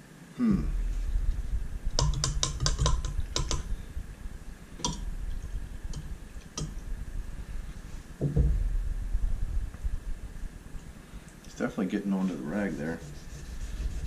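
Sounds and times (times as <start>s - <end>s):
metal rod ticking on plastic cup: 2.0s - 3.7s, 4.8s - 5.0s.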